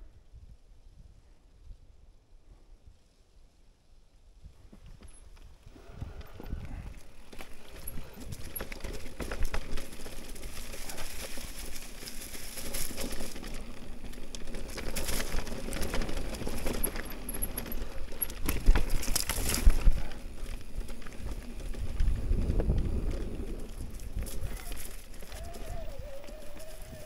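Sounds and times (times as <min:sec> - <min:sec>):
tyres crunching over leaves: 0:05.8 - 0:27.0
bike clattering over bumps: 0:06.1 - 0:27.0.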